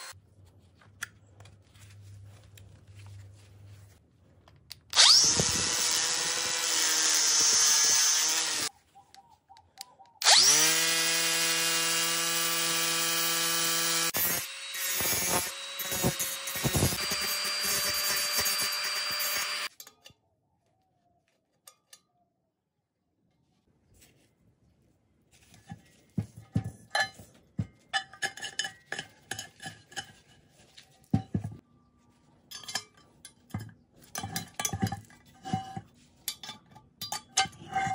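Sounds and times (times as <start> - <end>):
angle grinder whining: 5.0 - 8.7, 10.2 - 19.7.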